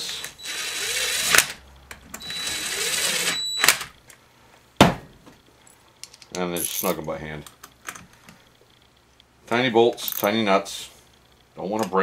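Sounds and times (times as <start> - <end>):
cordless driver spinning nuts: 0.0 - 1.6, 2.2 - 3.7.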